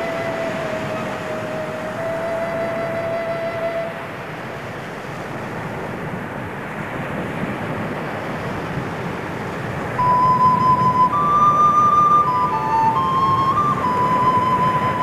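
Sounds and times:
held flute-like note: 0:00.0 - 0:04.4, 0:10.0 - 0:15.0
steady rushing ambient noise: 0:00.0 - 0:15.0.

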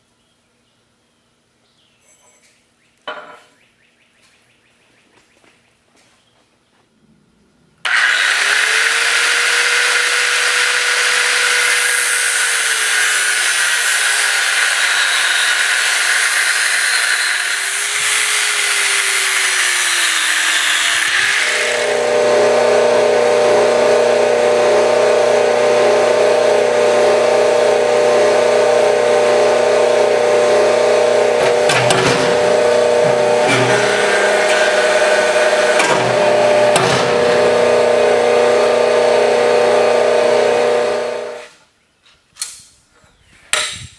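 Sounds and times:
angle grinder cutting steel: 0:07.8 - 0:41.5
forging press humming: 0:07.9 - 0:41.4.

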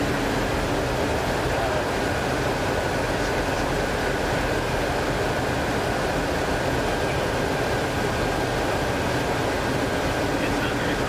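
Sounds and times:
aircraft cockpit engine rush: 0:00.0 - 0:11.0
thin steady whine: 0:00.0 - 0:11.0.

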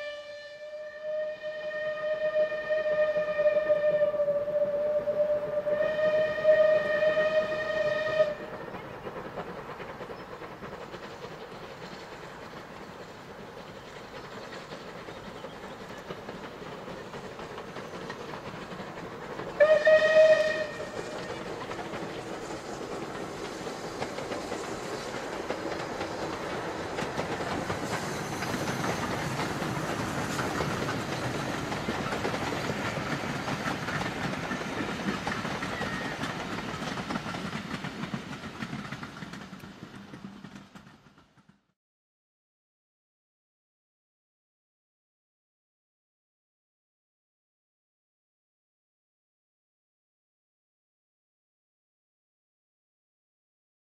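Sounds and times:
steam whistle blast: 0:00.0 - 0:08.6, 0:19.6 - 0:21.1
train running on rails: 0:00.0 - 0:41.8.

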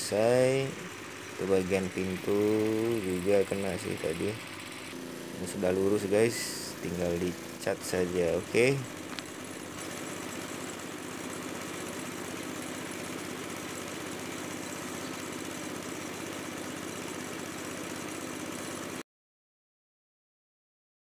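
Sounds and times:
air compressor running: 0:00.0 - 0:19.0
paint spray gun hissing: 0:00.0 - 0:19.0.

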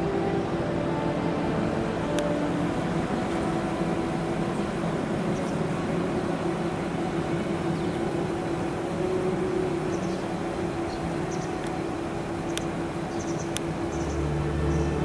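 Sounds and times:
steady engine drone: 0:00.0 - 0:15.0.

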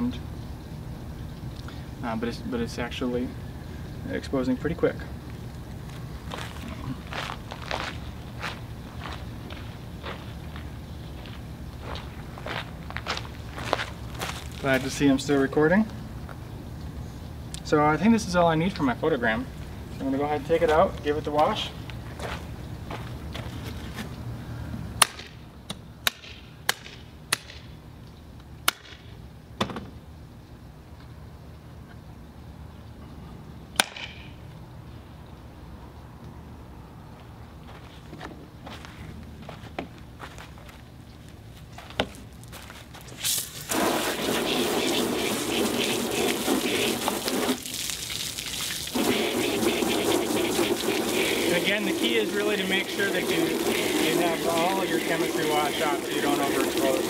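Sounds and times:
hose water splashing into tub: 0:43.2 - 0:57.0.

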